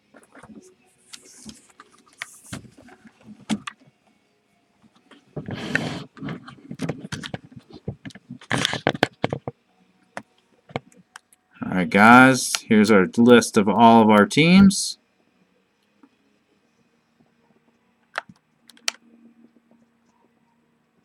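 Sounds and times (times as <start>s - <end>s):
rustling handling noise: 4.8s - 9.6s
laptop keys clicking: 18.2s - 19.0s.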